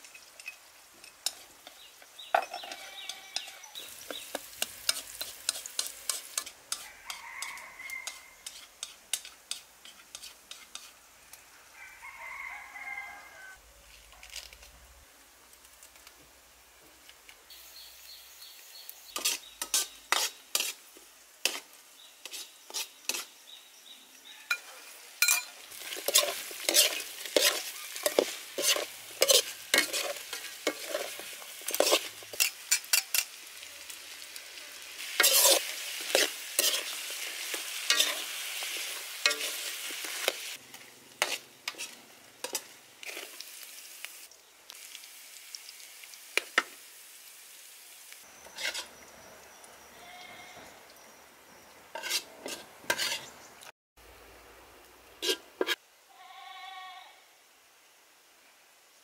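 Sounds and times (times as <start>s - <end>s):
metal ladle scraping wok: 0.0s - 11.0s, 19.1s - 20.8s, 21.4s - 23.3s, 24.5s - 43.4s, 48.4s - 49.0s, 51.9s - 53.4s, 55.2s - 55.8s
prawns sizzling in oil: 0.0s - 56.0s.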